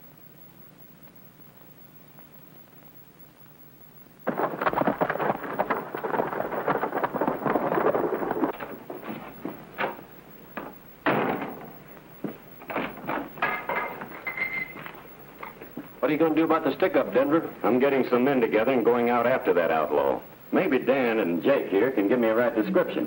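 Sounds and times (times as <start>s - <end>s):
clatter of hooves and wheels: 4.3s - 16.0s.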